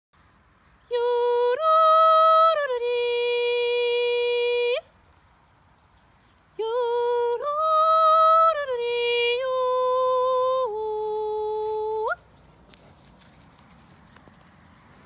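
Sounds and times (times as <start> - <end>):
woman singing herding call: 0.9 - 4.9, 6.6 - 12.2.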